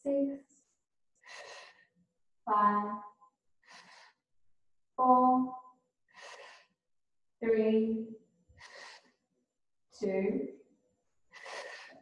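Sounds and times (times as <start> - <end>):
woman breathing and sighing: 1.2 - 2.0, 3.6 - 4.3, 6.1 - 6.9, 8.5 - 9.3, 11.3 - 12.0.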